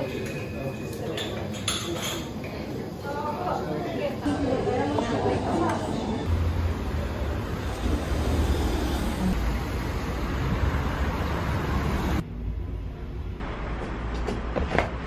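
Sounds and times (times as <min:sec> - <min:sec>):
passing cars rumbling: 0:06.3 - 0:12.3
traffic hiss on wet road: 0:06.4 - 0:12.2.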